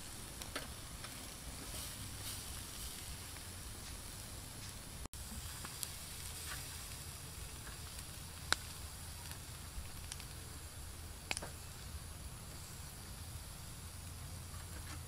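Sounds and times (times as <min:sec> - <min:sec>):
chicken wings sizzling on grill: 0:00.0 - 0:15.0
sharp clicks: 0:08.5 - 0:10.4.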